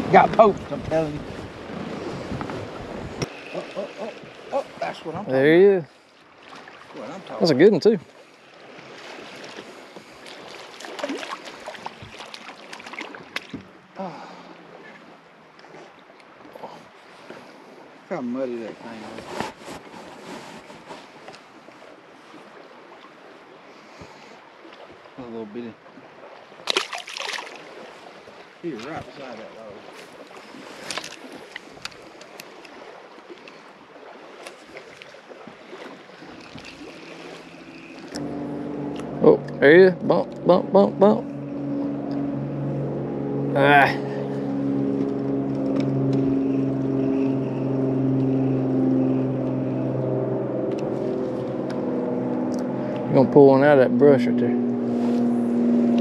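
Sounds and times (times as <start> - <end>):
water by a boat: 0.0 - 56.0
wind: 0.0 - 56.0
fishing reel clicking: 36.5 - 38.2.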